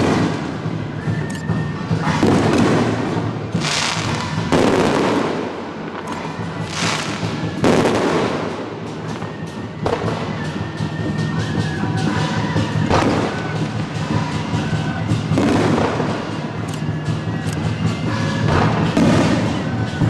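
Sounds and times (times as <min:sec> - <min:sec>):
firework shells bursting: 0:00.0 - 0:08.6
fireworks crackling: 0:00.0 - 0:20.0.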